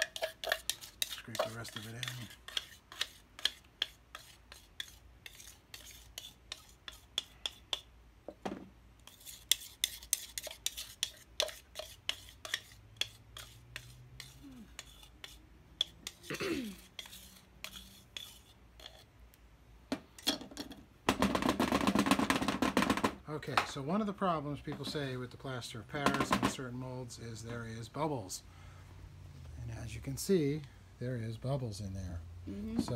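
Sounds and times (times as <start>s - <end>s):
utensil scraping and tapping a cup: 0.0s - 19.1s.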